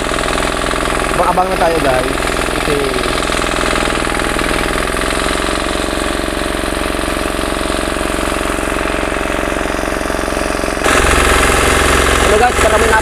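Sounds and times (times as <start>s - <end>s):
small engine driving water pump: 0.0s - 13.0s.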